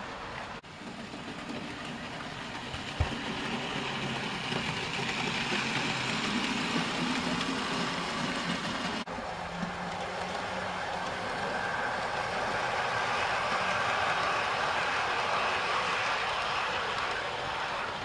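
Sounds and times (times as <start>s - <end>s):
model train rumbling: 0.0s - 18.0s.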